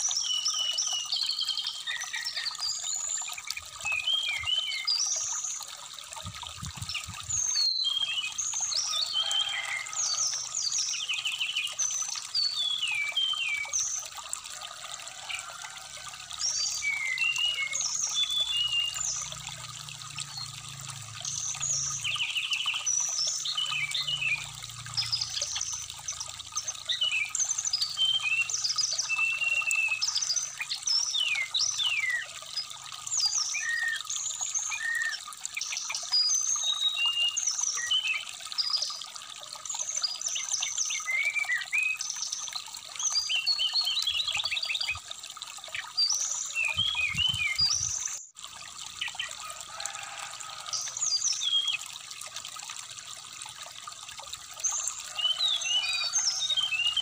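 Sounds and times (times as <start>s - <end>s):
stream trickling: 0.0s - 57.0s
bird singing whistles and chirps: 7.4s - 8.3s.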